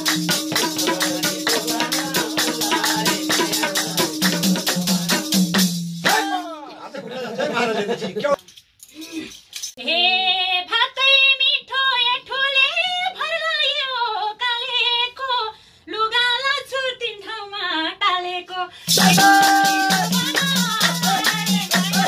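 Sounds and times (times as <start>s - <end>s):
woman singing: 0.0s - 4.4s, 9.8s - 22.0s
hand drum beat: 0.0s - 6.4s, 18.9s - 22.0s
jingling hand shaker: 0.0s - 6.4s, 18.9s - 22.0s.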